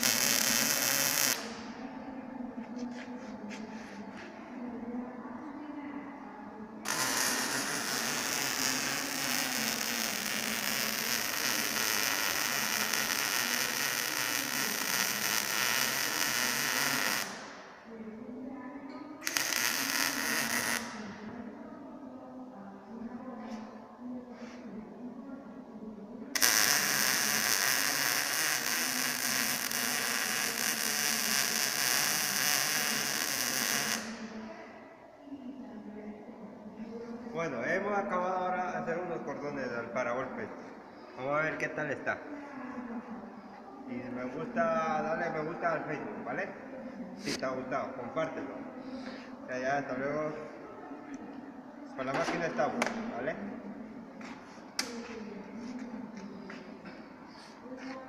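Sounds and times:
welding arc crackling hiss: 0.0s - 1.6s, 6.9s - 17.5s, 19.2s - 21.0s, 26.4s - 34.3s.

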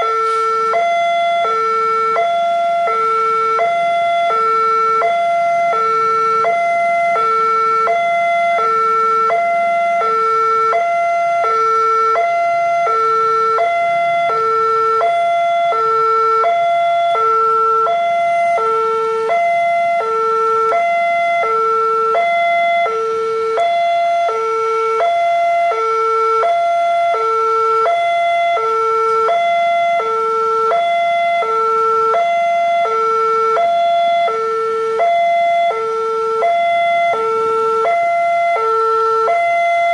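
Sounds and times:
level crossing alarm: 0.0s - 39.9s.

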